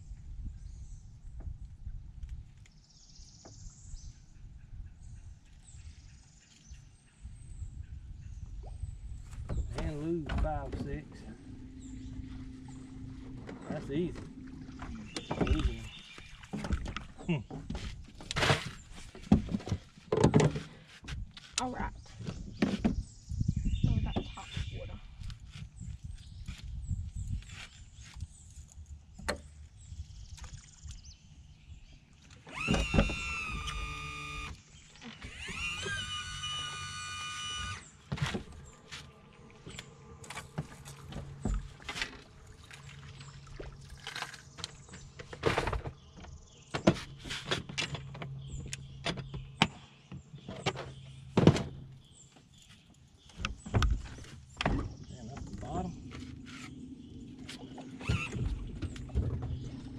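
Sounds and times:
electric trolling motor whining: 0:10.8 - 0:17.0, 0:32.4 - 0:42.9, 0:56.4 - 0:59.9.

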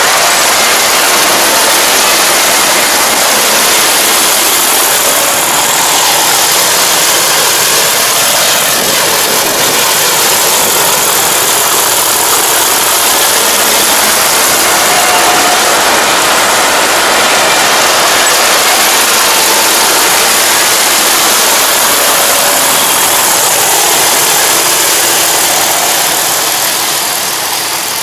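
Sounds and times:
combine harvester running: 0:00.0 - 0:28.0.

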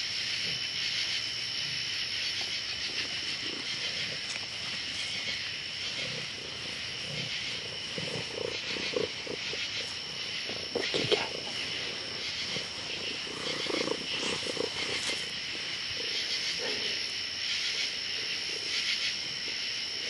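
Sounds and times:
slowed insect drone: 0:00.0 - 0:20.0
slowed cat purring: 0:02.9 - 0:17.0.

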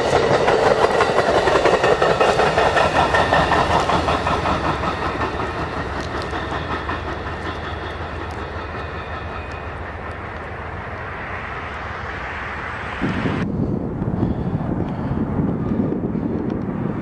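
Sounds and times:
train wheels rumbling on track: 0:00.0 - 0:17.0.

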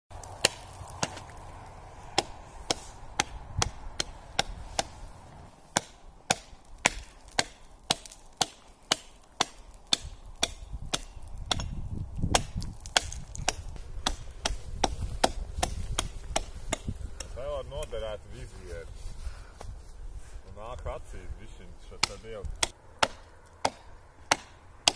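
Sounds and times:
hatchet chopping ice: 0:00.4 - 0:01.2, 0:02.1 - 0:04.9, 0:05.7 - 0:17.3, 0:21.9 - 0:24.9.

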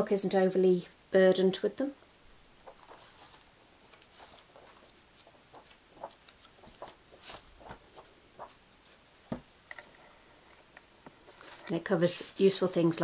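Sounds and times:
book pages flicked through: 0:02.6 - 0:09.0.

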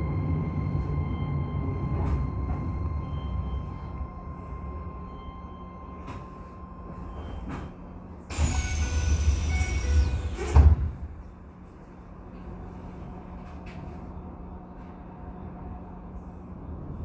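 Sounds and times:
low rumble of stopped train: 0:00.0 - 0:17.0
doors rushing with falling whistle: 0:08.3 - 0:10.6.

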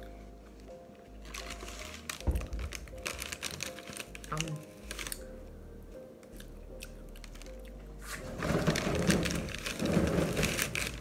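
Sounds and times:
low steady hum: 0:00.0 - 0:11.0
paper bag rustling: 0:01.2 - 0:05.2, 0:08.0 - 0:11.0.

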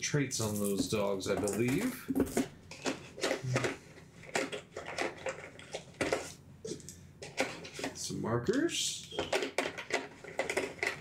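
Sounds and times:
cards and plastic bags rustling: 0:00.4 - 0:11.0.

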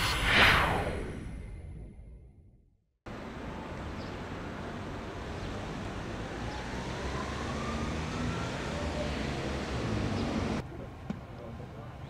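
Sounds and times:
low rumble of traffic: 0:03.1 - 0:12.0
passing vehicle whine: 0:04.6 - 0:10.6.

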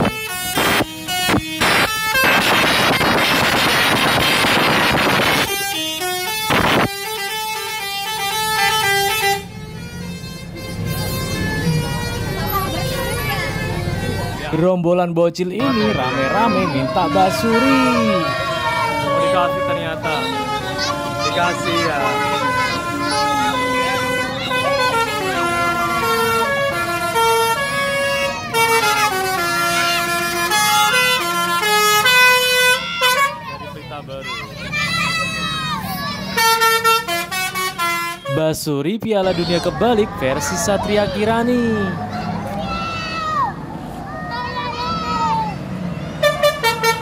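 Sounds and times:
musical bus horn melody: 0:00.0 - 0:14.5, 0:15.6 - 0:33.6, 0:36.3 - 0:38.6, 0:46.1 - 0:47.0.

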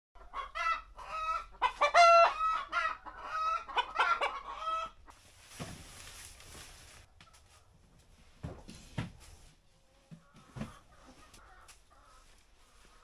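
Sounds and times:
chickens clucking and squawking: 0:00.2 - 0:05.4, 0:09.6 - 0:13.0
faint rustle: 0:05.2 - 0:08.4.

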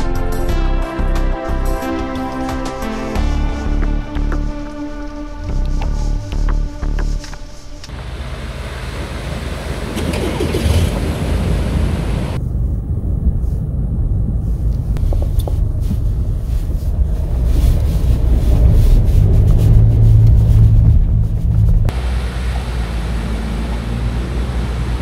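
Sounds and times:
low engine drone inside vehicle: 0:04.4 - 0:25.0
vehicle engines running: 0:05.5 - 0:25.0
water splashing around wheels: 0:07.9 - 0:12.4, 0:15.0 - 0:20.8.

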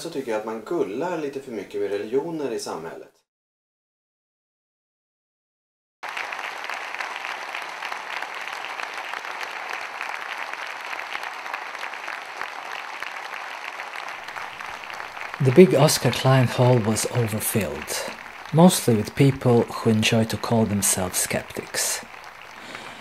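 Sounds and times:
audience applauding: 0:06.0 - 0:23.0.

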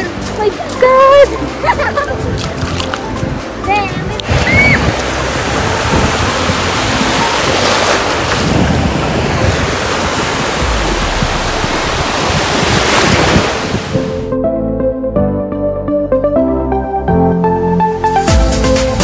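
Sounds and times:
wind buffeting microphone: 0:00.0 - 0:14.3
ocean surf washing in: 0:03.1 - 0:14.2.

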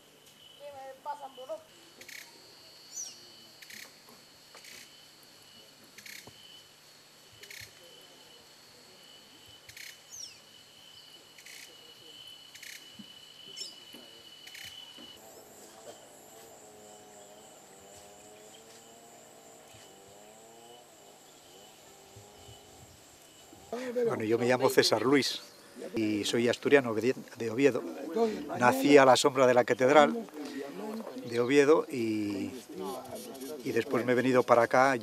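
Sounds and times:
bird chirps: 0:02.9 - 0:03.9, 0:13.5 - 0:15.2
high-pitched insect drone: 0:07.3 - 0:25.3.

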